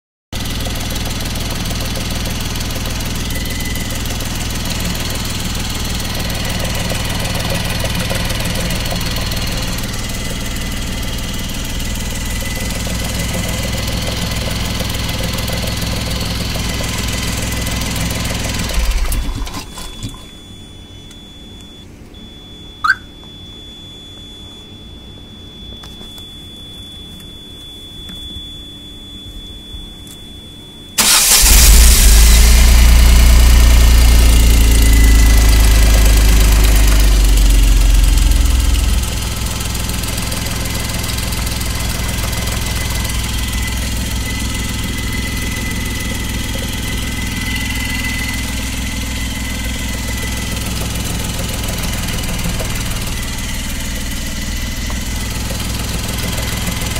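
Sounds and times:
engine running: 0:00.4 - 0:20.4, 0:31.0 - 0:56.9
faint high-pitched tone: 0:18.7 - 0:31.1
short chirp: 0:22.7 - 0:23.3.

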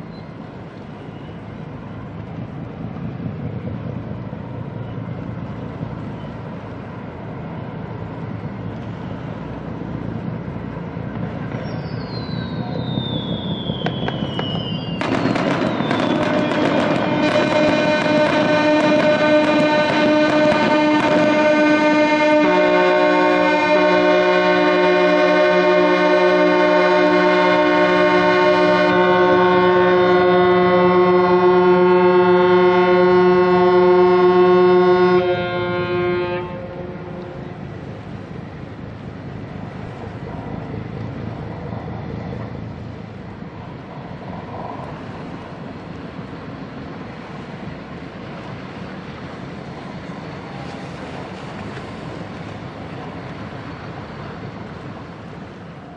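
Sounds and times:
ship horns blasting: 0:15.0 - 0:38.2.

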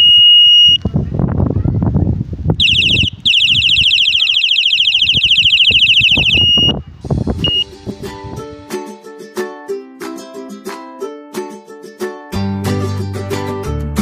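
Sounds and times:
electronic bicycle horn beeps: 0:00.0 - 0:00.8, 0:02.6 - 0:06.8, 0:07.4 - 0:07.7
warbling siren tone: 0:02.6 - 0:06.8
plucked string music: 0:07.3 - 0:14.0.

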